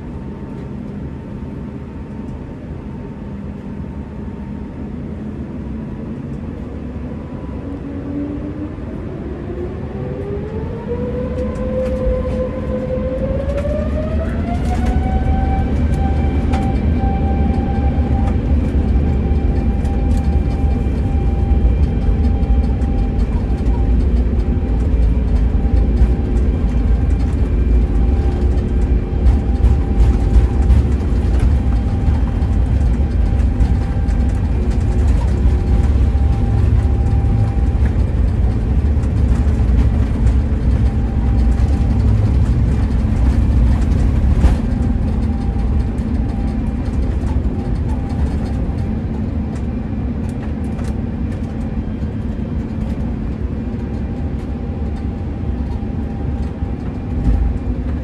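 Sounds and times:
jet engines at takeoff thrust: 0:00.0 - 0:58.0
wheel rumble on runway: 0:11.4 - 0:58.0.

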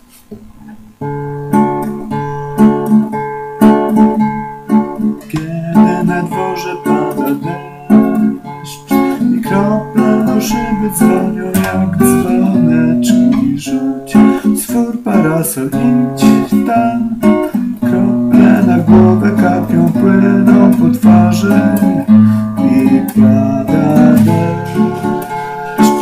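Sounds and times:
acoustic guitar strumming chords: 0:00.0 - 0:26.0.

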